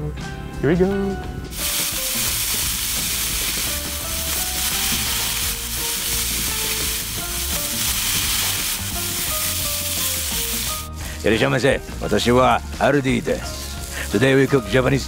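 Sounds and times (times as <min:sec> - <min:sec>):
light background music: 0:00.0 - 0:15.0
meat sizzling in a frying pan: 0:01.5 - 0:11.1, 0:13.4 - 0:15.0.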